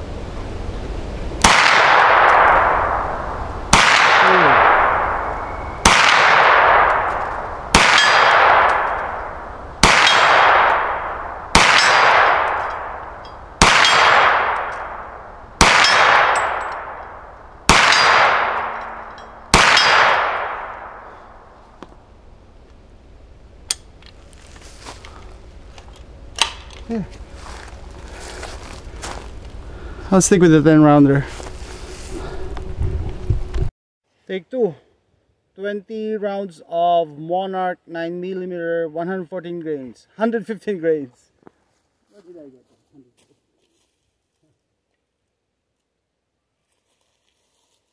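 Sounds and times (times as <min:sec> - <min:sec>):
gunshots with echo: 0:01.4 - 0:21.3.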